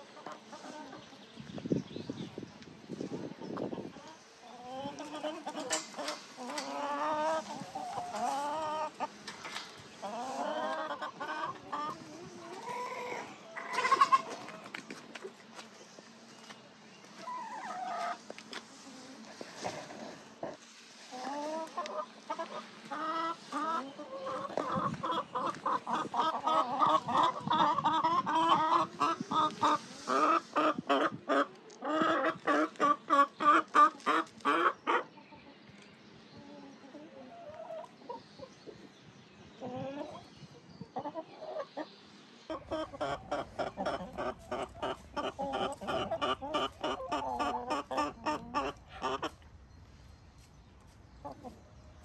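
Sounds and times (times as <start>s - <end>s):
chickens clucking and cackling: 0.0s - 52.0s.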